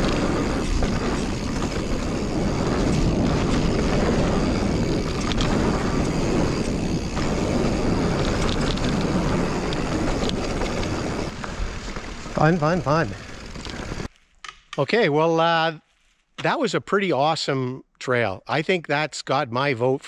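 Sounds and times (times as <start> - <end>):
tyres rolling over dirt: 0.0 - 14.1
wind rushing over microphone: 0.0 - 14.1
bike clicks and rattles: 0.0 - 14.8.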